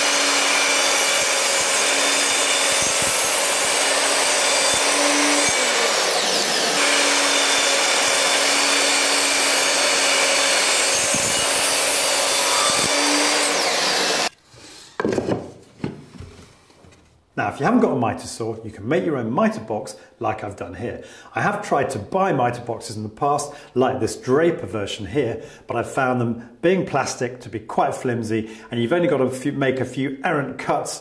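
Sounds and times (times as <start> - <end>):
mitre saw cutting wood: 0.0 - 14.7.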